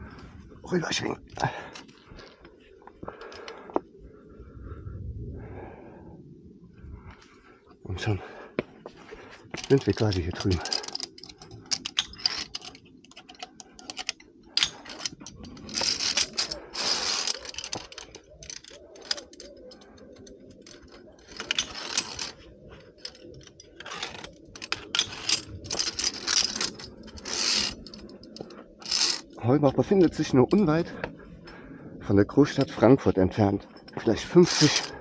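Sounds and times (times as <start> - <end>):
carabiners clinking on steel cable: 9.4 - 31.1, 32.3 - 35.0.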